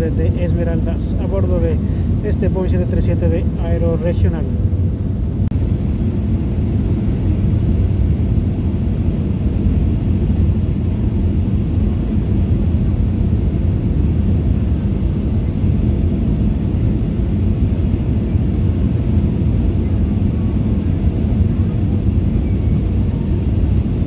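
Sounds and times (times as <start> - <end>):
airplane cabin engine rumble: 0.0 - 24.0.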